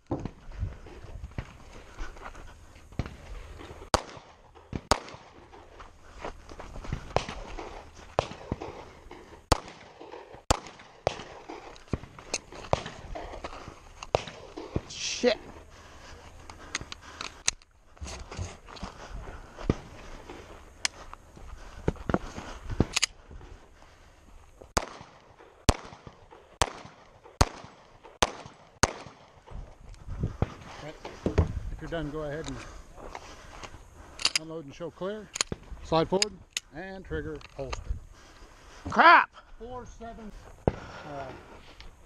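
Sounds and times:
movement noise: 0:00.0 - 0:28.2, 0:29.3 - 0:42.0
pistol shots: 0:03.9 - 0:05.6, 0:07.2 - 0:12.1, 0:24.8 - 0:29.4.

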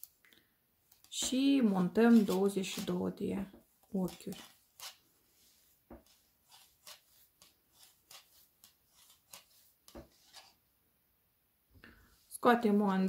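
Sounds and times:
yarn rubbing on knitting needle: 0:00.9 - 0:10.6.

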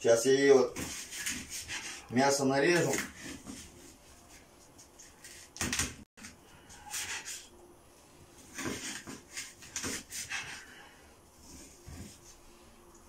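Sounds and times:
knife scraping on cutting board: 0:00.8 - 0:02.1, 0:06.7 - 0:07.5, 0:08.5 - 0:10.8.

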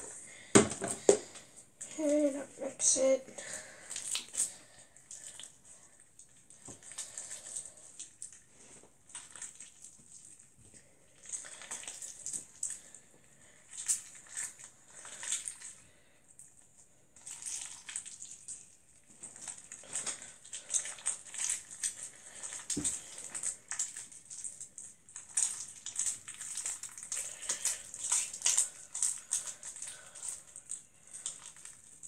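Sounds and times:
slime squelching and crackling: 0:00.0 - 0:32.0.

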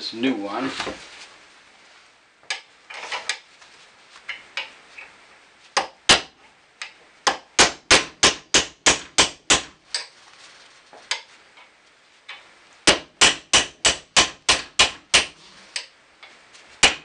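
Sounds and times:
hammer striking metal pin: 0:12.9 - 0:15.9.

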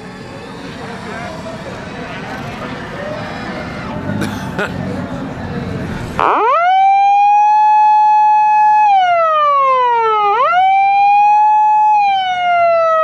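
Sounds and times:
police siren wailing: 0:06.2 - 0:13.0.

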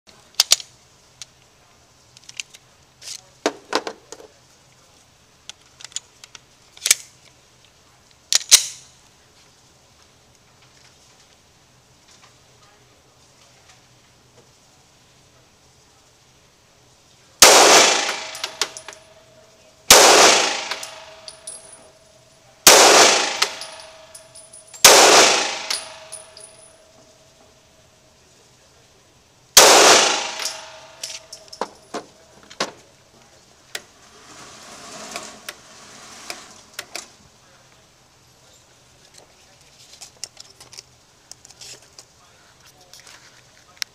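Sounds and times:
handgun shots echoing: 0:17.4 - 0:19.0, 0:19.9 - 0:21.5, 0:22.7 - 0:24.2, 0:24.8 - 0:26.6, 0:29.6 - 0:31.7.

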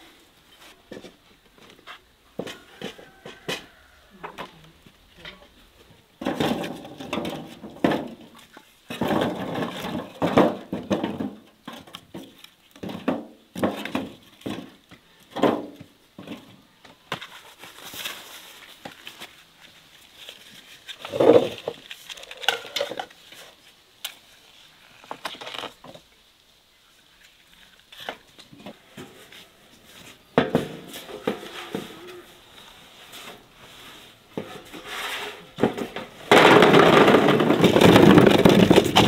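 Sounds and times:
rustling: 0:17.1 - 0:26.2, 0:26.8 - 0:39.0.

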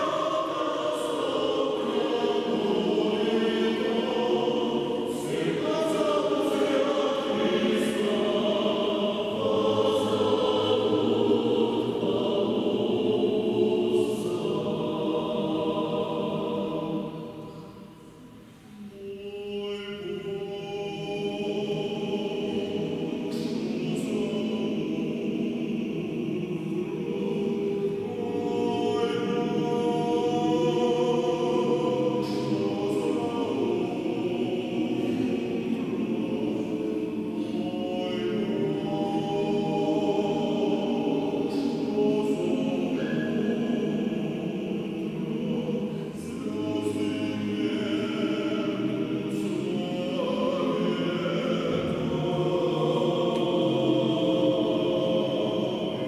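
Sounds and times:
mixed choir singing a hymn: 0:00.0 - 0:56.0.

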